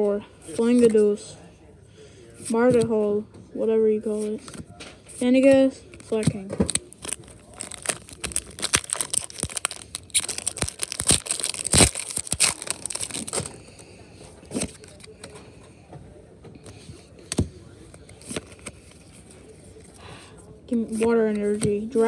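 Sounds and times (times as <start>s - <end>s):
foil wrapper crinkling and tearing: 6.6s - 13.6s.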